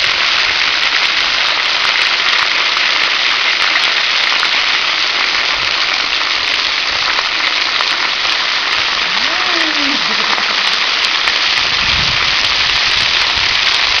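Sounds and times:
water jets spraying and splashing: 0.0s - 14.0s
person's voice: 9.0s - 10.9s.

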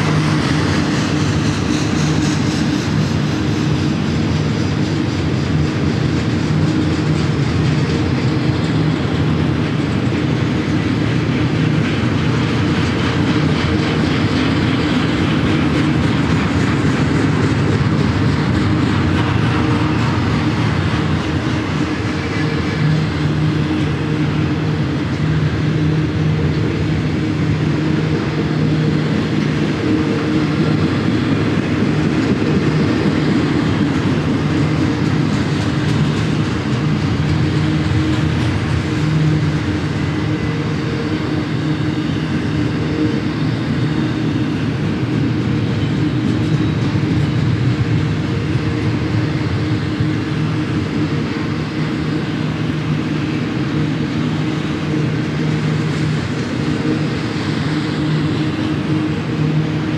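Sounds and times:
freight train rolling on rails: 0.0s - 59.9s.

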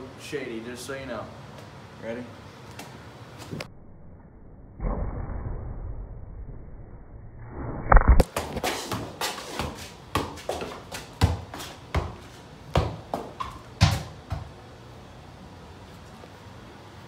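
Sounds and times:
ball thumping on feet: 8.2s - 14.6s.

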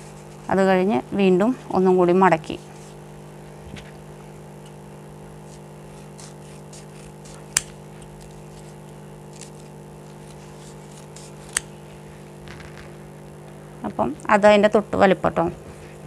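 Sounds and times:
steady low hum: 0.0s - 16.0s
paper crinkling: 5.6s - 11.6s.

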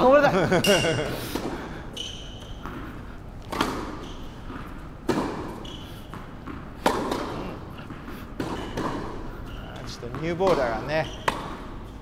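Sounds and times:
tennis ball pops echoing: 3.4s - 4.0s, 6.8s - 7.4s.

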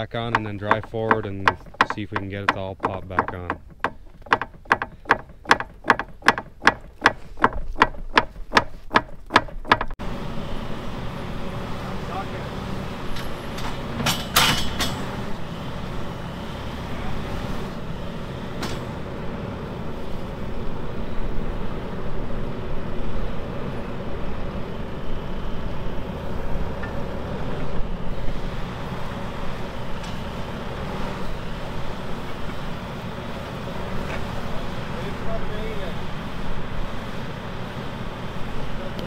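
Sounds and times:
sharp knock: 0.0s - 10.0s
diesel engine idling: 0.0s - 14.0s.

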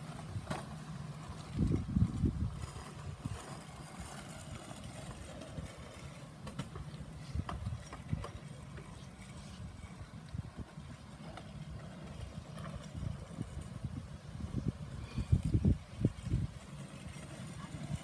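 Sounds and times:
kick scooters rolling on asphalt: 0.0s - 18.0s
scooter decks clacking on pavement: 0.0s - 18.0s.

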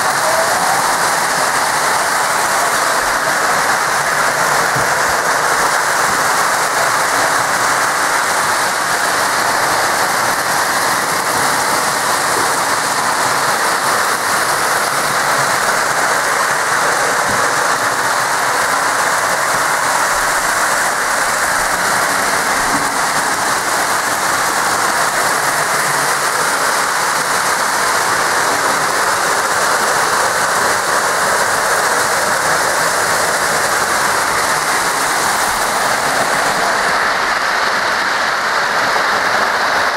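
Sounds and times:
model trains running on track: 0.0s - 39.9s.

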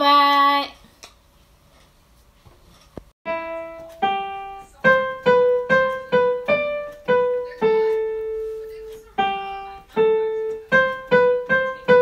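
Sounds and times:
slow piano melody: 3.3s - 12.0s.

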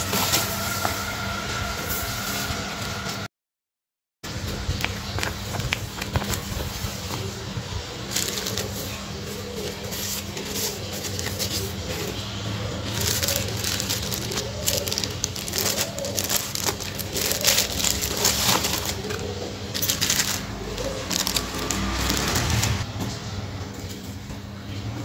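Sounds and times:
paper and plastic rustling: 4.5s - 22.9s.

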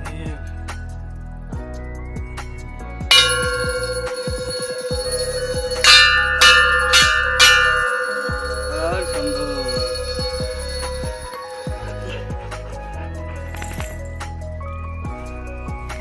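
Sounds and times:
metal bells ringing: 3.1s - 12.5s, 13.4s - 14.4s.

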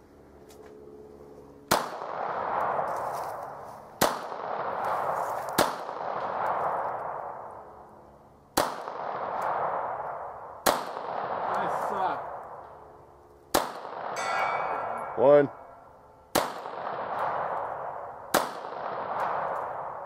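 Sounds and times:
pistol shots echoing: 8.6s - 10.0s, 13.5s - 20.0s.

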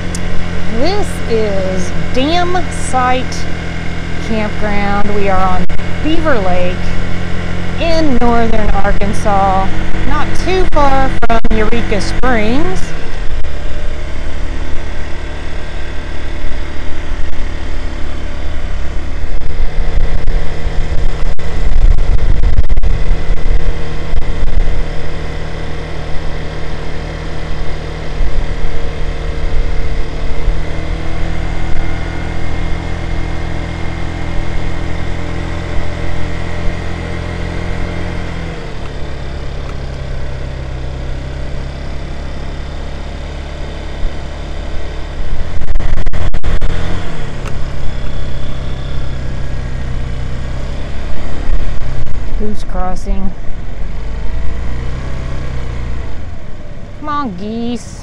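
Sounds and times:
scooter engine running: 0.0s - 58.0s.

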